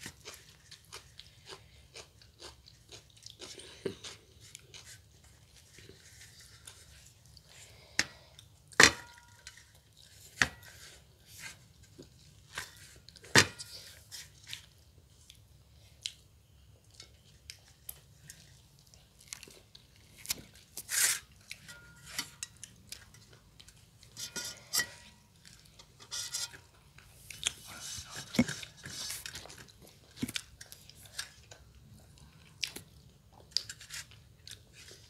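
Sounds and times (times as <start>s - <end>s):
chewing: 0.0s - 8.5s, 27.1s - 35.0s.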